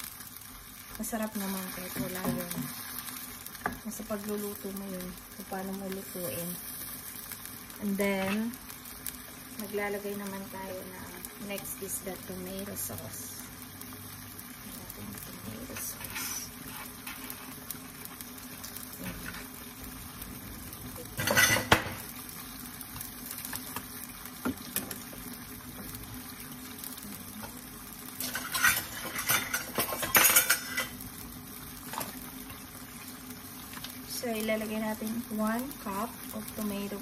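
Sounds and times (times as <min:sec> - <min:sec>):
kitchen utensils clattering: 0:21.2 - 0:22.0, 0:28.2 - 0:30.9.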